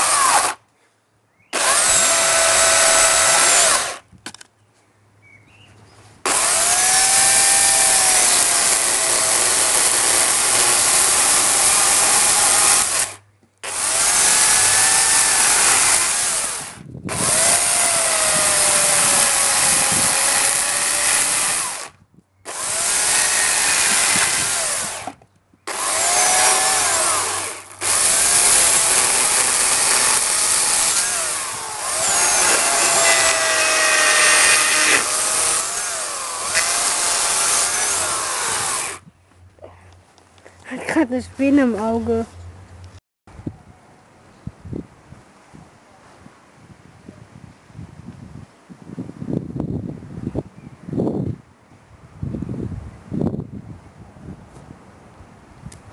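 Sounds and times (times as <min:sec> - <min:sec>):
electric chainsaw cutting wood: 0:00.0 - 0:00.6, 0:01.5 - 0:04.0, 0:06.3 - 0:39.0.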